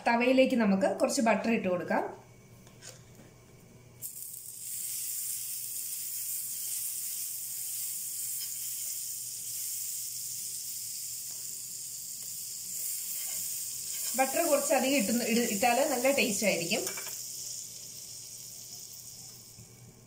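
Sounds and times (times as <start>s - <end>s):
butter sizzling on a hot pan: 4.0s - 20.0s.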